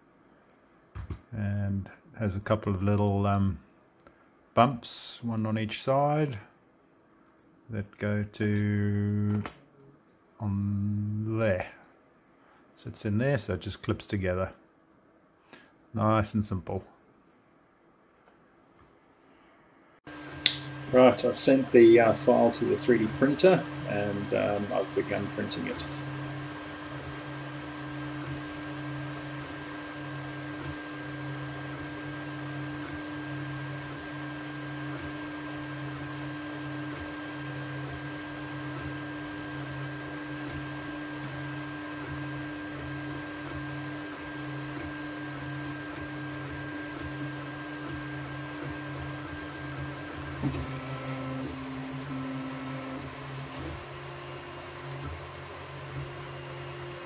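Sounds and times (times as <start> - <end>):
stepper motors whining: 20.1 - 57.0.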